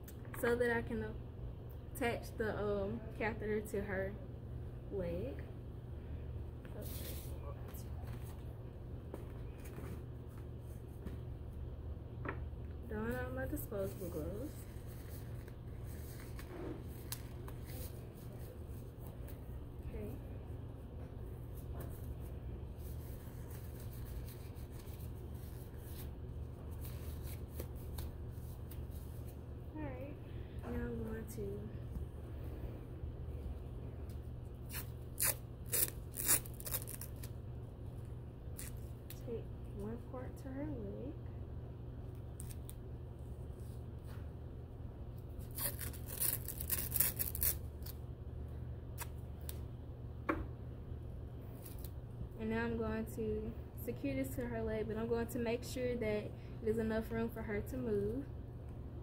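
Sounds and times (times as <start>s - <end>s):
steady low hum: 0.0s - 59.0s
rubber gloves crinkling: 13.5s - 19.6s, 21.4s - 29.4s, 34.6s - 37.4s, 45.4s - 48.0s
tape being torn: 34.6s - 37.4s, 38.6s - 39.2s, 42.4s - 42.8s, 45.4s - 48.0s, 49.0s - 49.6s.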